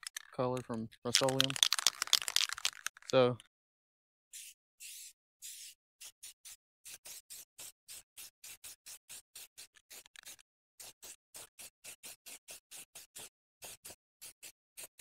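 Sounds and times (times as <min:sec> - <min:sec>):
spray-paint can hissing: 0:04.3 - 0:14.9.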